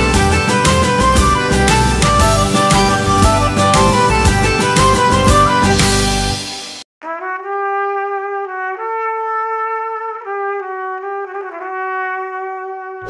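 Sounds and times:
slow melody of long held notes: 0.0s - 6.4s
busier music piece: 0.0s - 6.8s.

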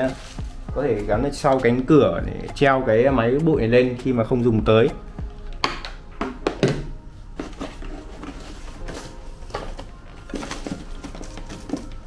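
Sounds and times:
packaging rustling: 7.4s - 12.0s.

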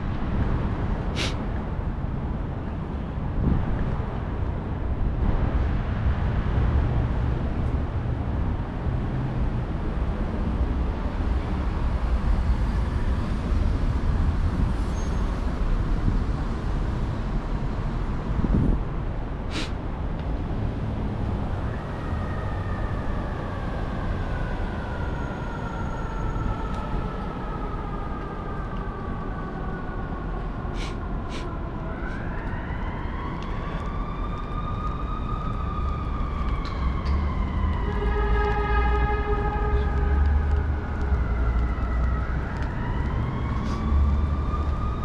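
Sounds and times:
city traffic rumble: 0.0s - 45.0s
emergency siren wailing: 21.2s - 45.0s
steady horn blast: 37.8s - 40.2s.

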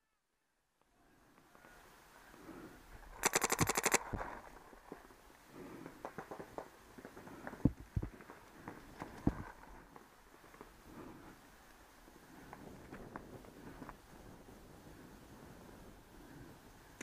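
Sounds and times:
paintball marker rapid firing: 3.2s - 4.3s.

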